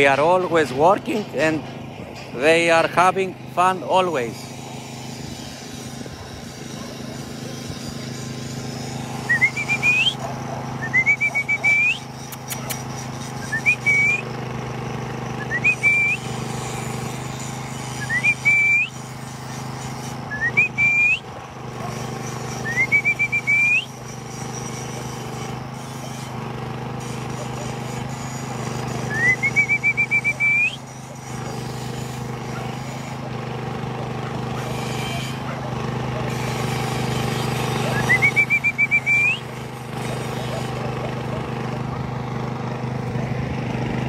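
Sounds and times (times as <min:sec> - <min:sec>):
man whistling: 0:09.2 - 0:10.2, 0:10.8 - 0:12.7, 0:13.4 - 0:14.3, 0:15.4 - 0:16.3, 0:18.0 - 0:19.0, 0:20.3 - 0:21.3, 0:22.6 - 0:24.0, 0:29.0 - 0:30.9, 0:37.9 - 0:39.5.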